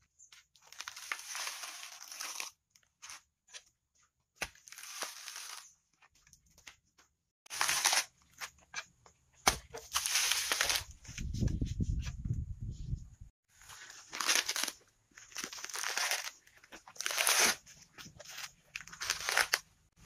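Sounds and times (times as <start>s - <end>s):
coconut husk tearing and cracking: 0.6s - 2.6s, 4.4s - 5.7s, 7.5s - 8.4s, 14.0s - 17.7s, 18.8s - 19.6s.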